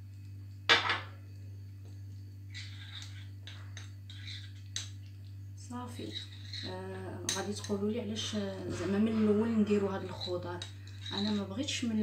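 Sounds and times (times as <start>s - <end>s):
steady low hum: 0.0s - 12.0s
spoon clinking and scraping glass bowl: 2.5s - 5.0s, 5.9s - 7.8s, 8.8s - 12.0s.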